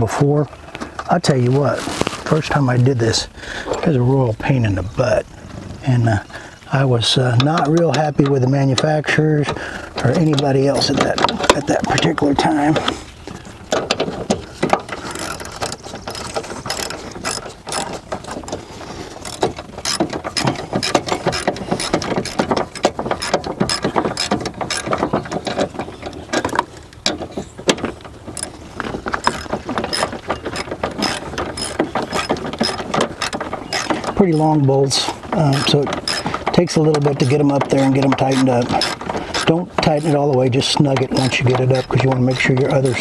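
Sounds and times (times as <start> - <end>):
hand ratchet clicking: 10.0 - 11.0, 14.9 - 18.0, 19.2 - 25.0, 28.3 - 28.6, 29.2 - 34.6, 35.4 - 40.4, 41.0 - 43.0.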